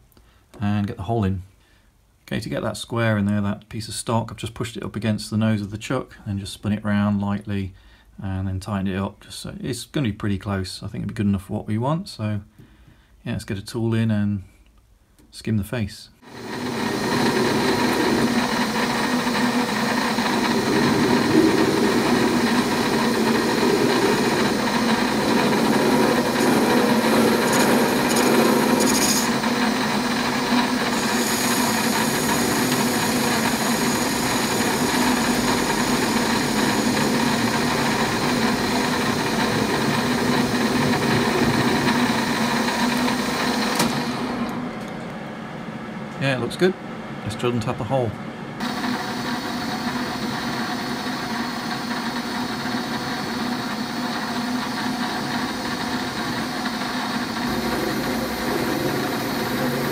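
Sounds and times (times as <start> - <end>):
metal lathe humming: 16.2 - 44.9, 48.6 - 59.9
cutting tool scraping metal: 16.3 - 43.1.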